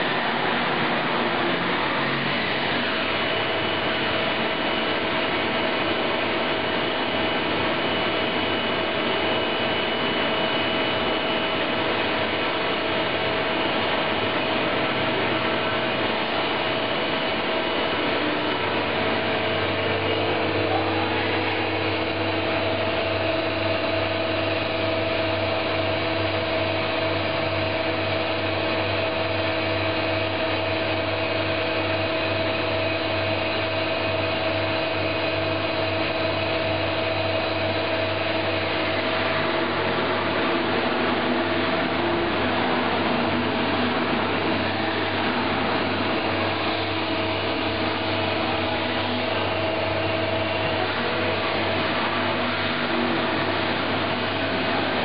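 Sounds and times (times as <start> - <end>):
machining center humming and whining: 0.0 - 55.0
deeper hum: 15.5 - 28.4.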